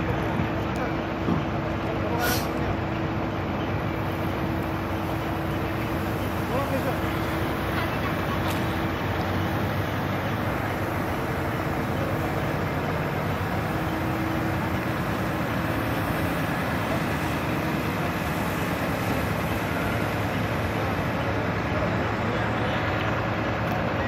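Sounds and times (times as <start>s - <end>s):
pump running under load: 0.0s - 24.0s
high-pressure water jet: 5.9s - 8.8s, 10.3s - 21.0s.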